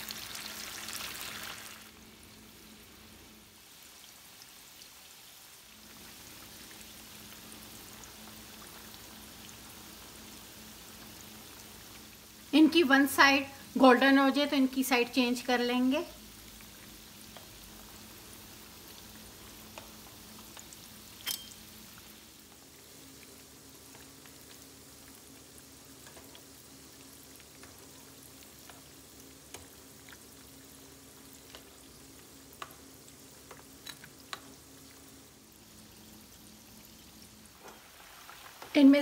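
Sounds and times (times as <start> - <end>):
meat sizzling in oil: 0.0 - 39.0
metal tongs clicking on pan: 21.2 - 21.6, 33.5 - 34.5.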